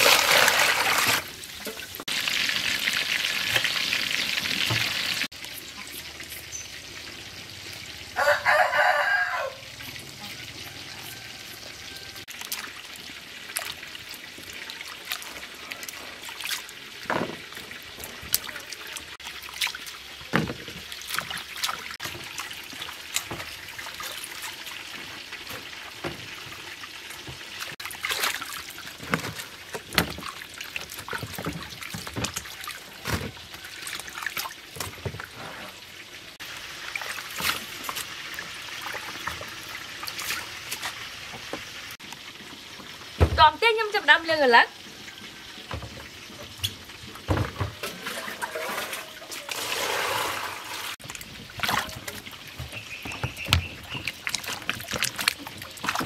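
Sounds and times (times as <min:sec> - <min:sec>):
water splashing and dripping: 0:00.0 - 0:56.0.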